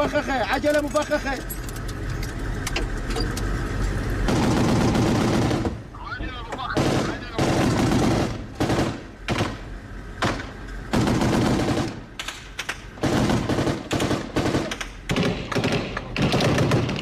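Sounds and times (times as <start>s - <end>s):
machine-gun fire: 4.2s - 5.8s, 6.8s - 17.0s.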